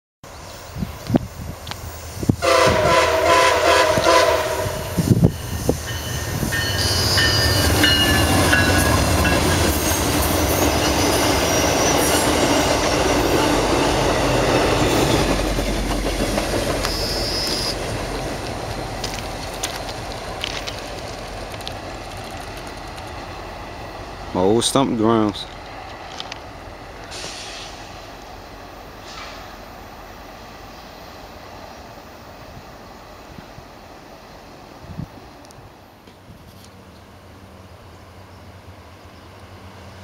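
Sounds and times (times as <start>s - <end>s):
train engine and wheels rumbling: 0.3s - 40.0s
train air horn: 2.4s - 5.2s
high wheel squeal: 5.0s - 12.3s, 16.7s - 17.9s.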